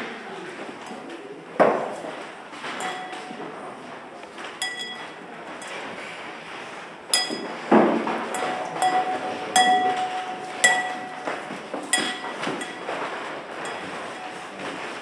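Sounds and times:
bright metallic chinking strikes: 8.4 - 12.9
steady ringing tone: 8.4 - 13.0, 13.6 - 15.0.

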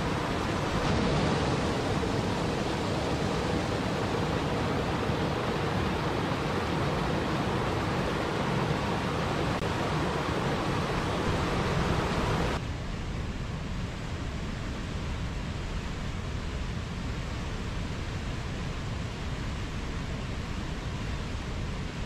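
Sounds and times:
water rushing over rocks: 0.0 - 12.6.

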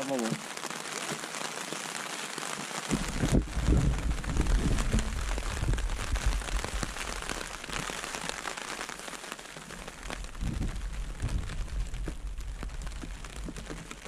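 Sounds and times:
rain on tent fabric: 0.0 - 14.0
wind rumbling on microphone: 2.9 - 8.5, 9.6 - 14.0.

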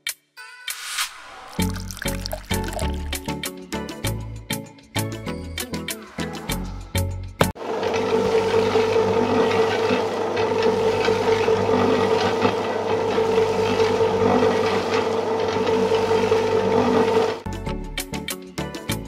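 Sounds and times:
small concrete mixer motor whining: 7.6 - 17.4.

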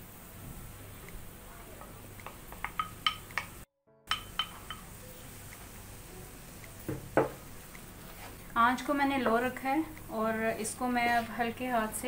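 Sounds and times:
clinks against a frying pan: 1.8 - 5.0
soft knock: 6.9 - 7.4.

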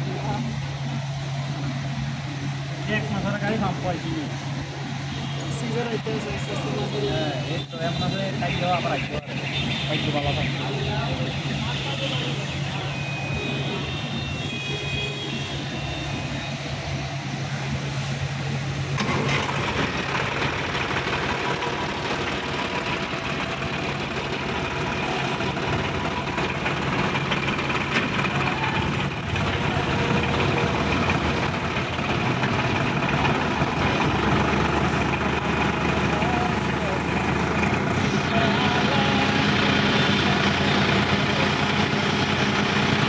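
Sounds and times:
tractor diesel engine revving: 18.9 - 43.0.

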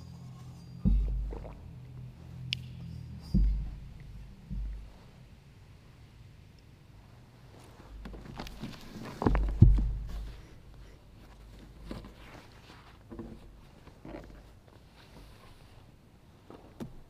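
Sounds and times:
heavy thumps on wood: 0.8 - 1.6, 3.3 - 5.0, 9.3 - 10.4
soft knocks: 0.8 - 1.6, 3.3 - 5.0
cloth and pages rustling: 7.5 - 10.5, 11.2 - 16.8.

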